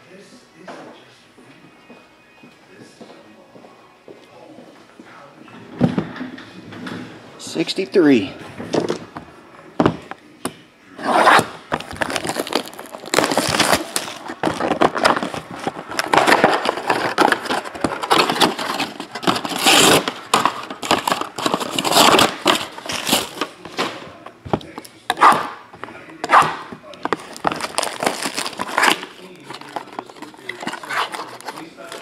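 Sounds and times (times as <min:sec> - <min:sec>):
plastic wrap crinkling: 0:11.3 - 0:24.0, 0:26.9 - 0:32.0.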